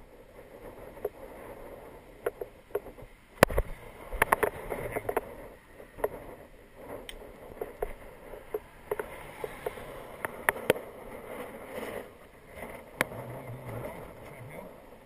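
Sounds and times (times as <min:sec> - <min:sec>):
bike rolling rushing noise: 0:00.0 - 0:15.0.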